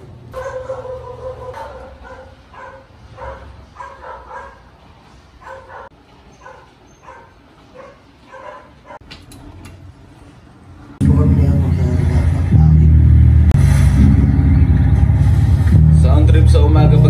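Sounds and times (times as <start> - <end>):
dog barking: 0.3 - 4.8, 5.4 - 9.1.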